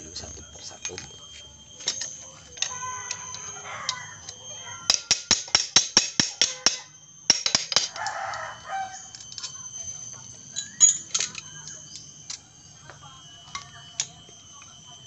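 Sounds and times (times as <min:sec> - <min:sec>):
hand tool clicking on metal: 0:01.8 - 0:08.1.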